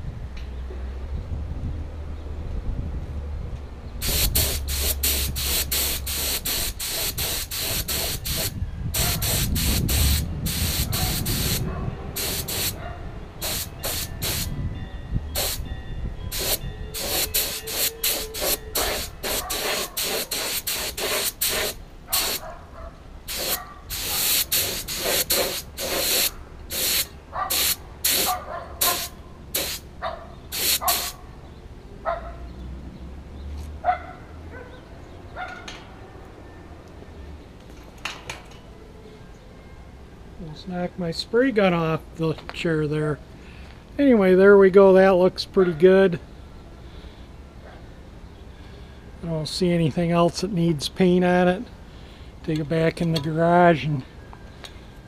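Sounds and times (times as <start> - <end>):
paint spray gun hissing: 4.0 - 11.6, 12.2 - 12.8, 13.4 - 14.5, 15.4 - 15.6, 16.3 - 22.4, 23.3 - 29.8, 30.5 - 31.2.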